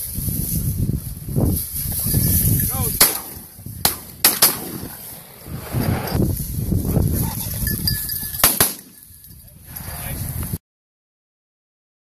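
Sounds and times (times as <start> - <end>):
shotgun shots: 3.0 - 5.1, 8.4 - 9.0.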